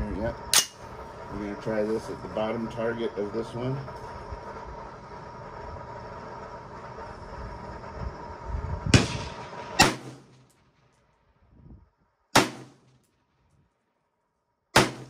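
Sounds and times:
steady background noise: 0.0 - 11.4
rifle shots: 8.9 - 10.5, 12.3 - 13.0, 14.8 - 15.0.

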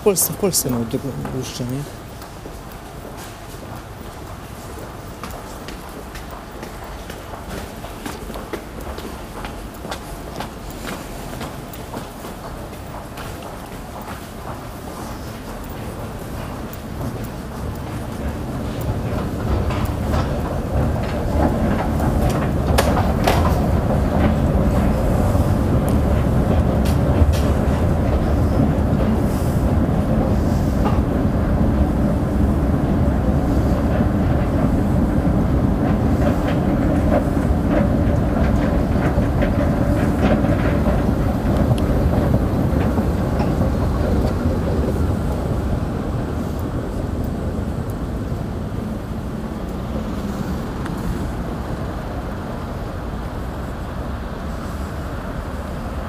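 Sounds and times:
metro train rumbling in tunnel: 0.0 - 56.0
wheels clicking on rails: 0.0 - 56.0.

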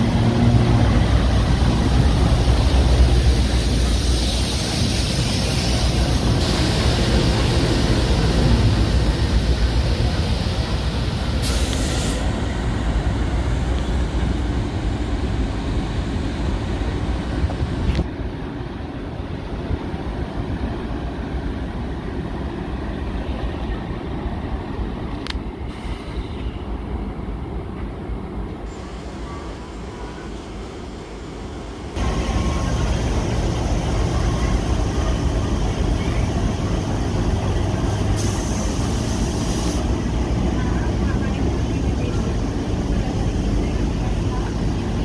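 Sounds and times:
diesel locomotive rumbling: 0.0 - 45.0.

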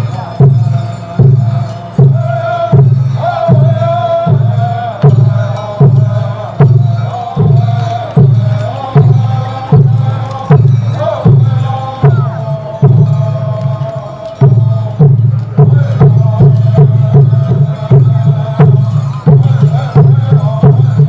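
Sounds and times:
deep drum beating slowly: 0.0 - 21.0
person chanting: 0.0 - 21.0.

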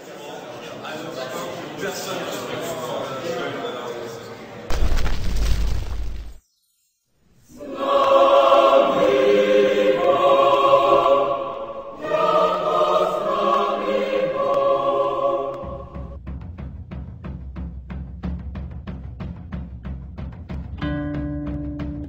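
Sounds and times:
choir singing held chords: 7.4 - 16.2.

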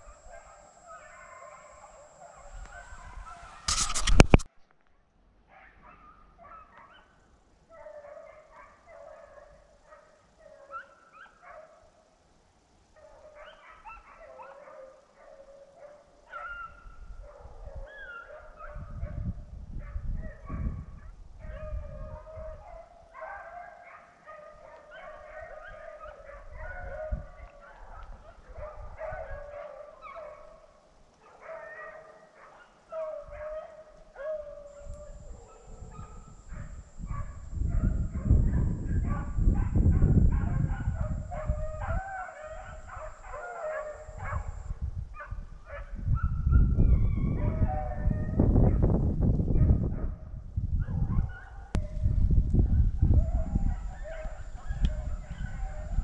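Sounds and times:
beagles baying: 40.5 - 44.6.

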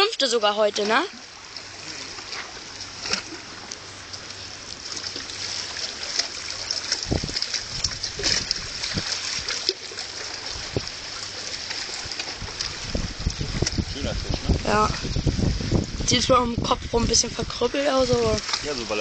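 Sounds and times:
water lapping and splashing: 0.0 - 19.0
dull low thumps: 12.4 - 18.4.

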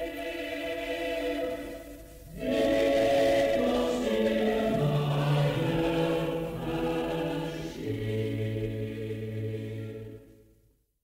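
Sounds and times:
choir singing in harmony: 0.0 - 10.4.

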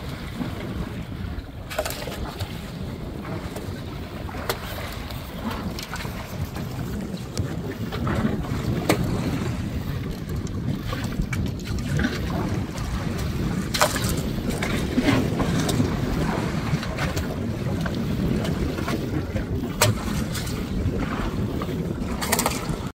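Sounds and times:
low rumble of water: 0.0 - 22.9
wind buffeting microphone: 0.0 - 22.9.

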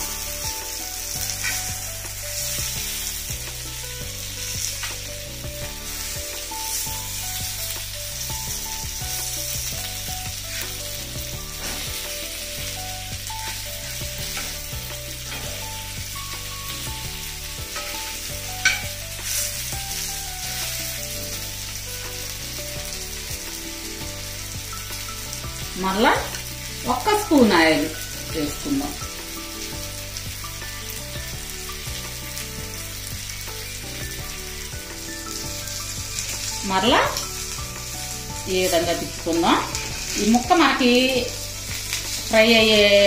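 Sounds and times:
fish sizzling in a pan: 0.0 - 43.0
metal spatula scraping a pan: 1.2 - 3.0, 11.5 - 12.3, 17.7 - 19.6.

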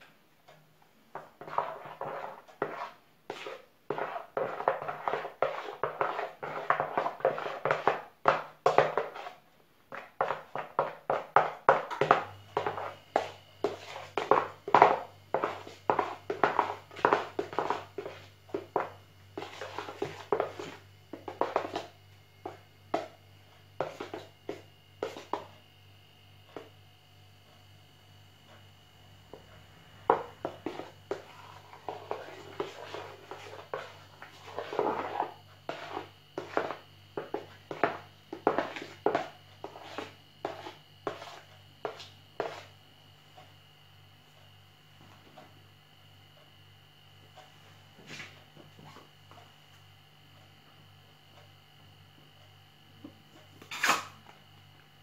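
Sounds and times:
faint steady hum: 0.0 - 55.0
spoon stirring wet slime: 1.2 - 23.2, 30.1 - 42.8.

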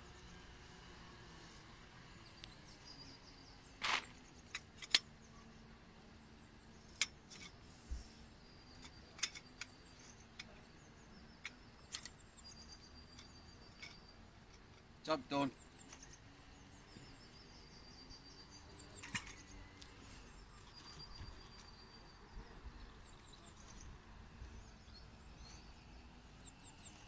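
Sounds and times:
metal tent poles clicking: 3.8 - 5.2, 6.8 - 7.6, 8.6 - 10.6, 11.4 - 14.9, 18.8 - 19.9.

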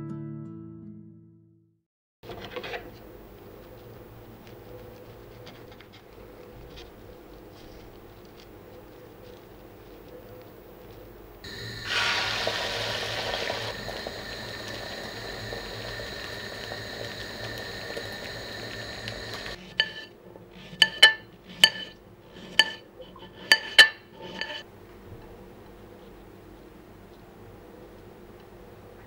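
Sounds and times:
egg sizzling in a pan: 11.4 - 24.6.

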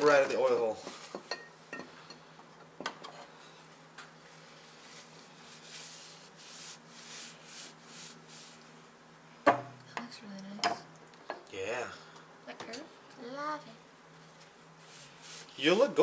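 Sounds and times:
faint steady hum: 0.0 - 16.0
soft rubbing strokes: 3.4 - 9.2, 14.1 - 16.0.

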